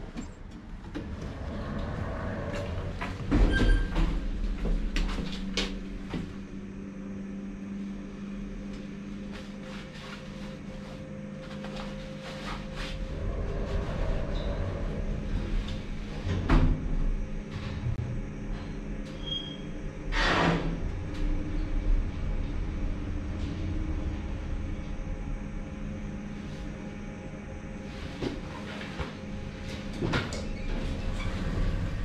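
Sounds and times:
elevator doors closing: 0.0s - 6.6s, 13.1s - 24.9s, 28.2s - 32.0s
elevator drive humming: 0.0s - 32.0s.

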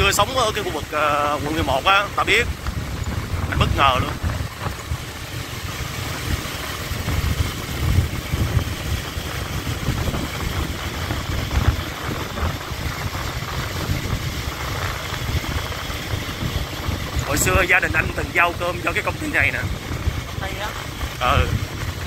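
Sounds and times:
small motorbike engine running: 0.0s - 22.0s
wind rumbling on microphone: 0.0s - 22.0s.

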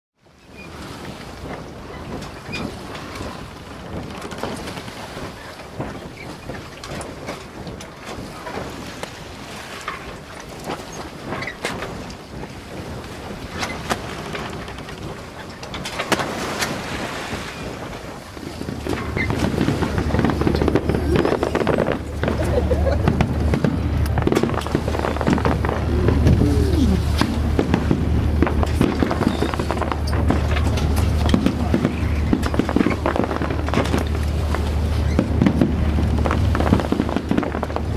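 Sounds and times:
wind buffeting the microphone: 0.2s - 37.9s
fireworks crackling and banging: 1.4s - 37.9s
steady low hum: 16.1s - 37.9s.

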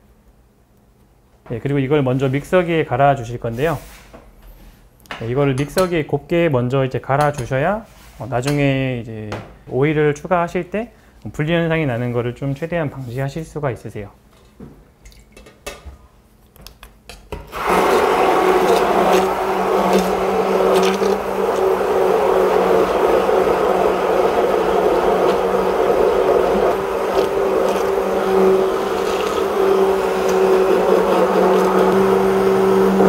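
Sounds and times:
stick blender motor running: 17.5s - 33.0s.

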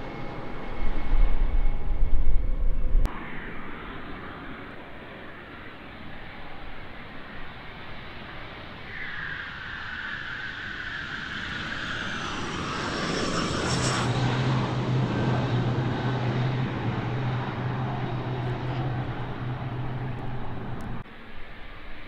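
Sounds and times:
low hum: 0.0s - 6.8s, 12.6s - 22.0s
jet engine roaring: 0.0s - 21.6s
descending jet whine: 0.0s - 22.0s.

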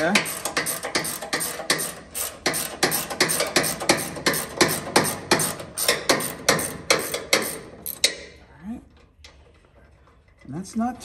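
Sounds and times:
wrench winding out bolt: 0.0s - 8.2s.

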